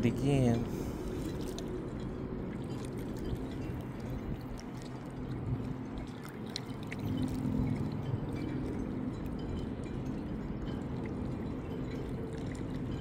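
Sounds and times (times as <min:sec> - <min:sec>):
waves lapping against rocks: 0:00.1 - 0:08.7.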